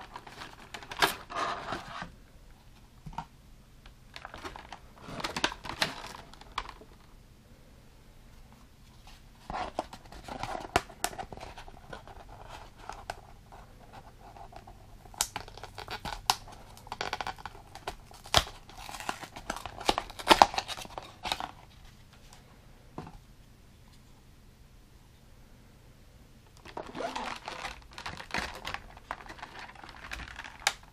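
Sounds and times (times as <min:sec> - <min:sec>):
plastic crinkling and scraping: 0:00.0 - 0:02.1, 0:04.1 - 0:07.1, 0:08.9 - 0:22.4, 0:26.6 - 0:30.9.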